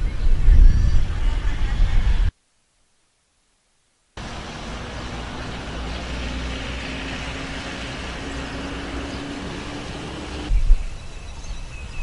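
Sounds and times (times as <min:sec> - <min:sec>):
roadside traffic on wet street: 0:04.2 - 0:10.5
faint engine hum: 0:04.2 - 0:10.6.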